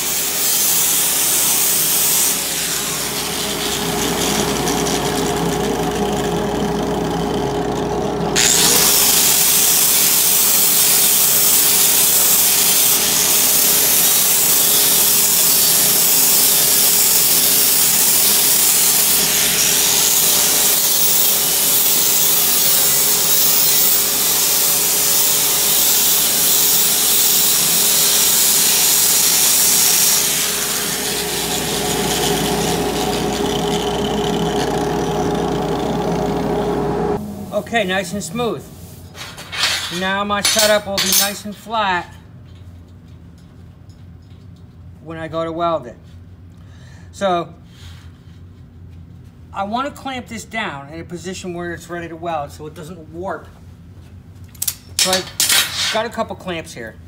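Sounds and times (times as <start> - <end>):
disc grinding on steel: 1.9 - 9.2, 28.8 - 37.2
angle grinder motor whine: 2.3 - 9.8, 13.0 - 37.6.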